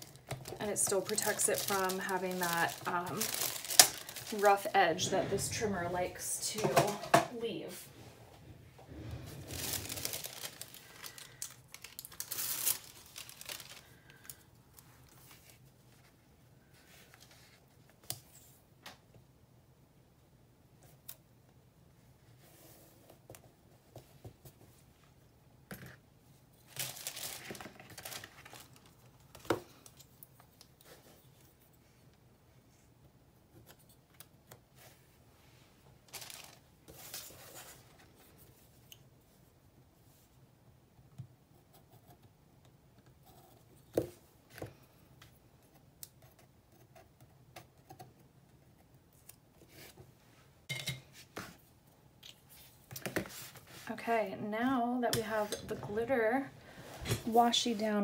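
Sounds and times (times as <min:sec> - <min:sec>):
paper and tape rustling: 0:00.0 - 0:07.0, 0:09.0 - 0:16.2, 0:26.6 - 0:31.8, 0:36.0 - 0:39.0.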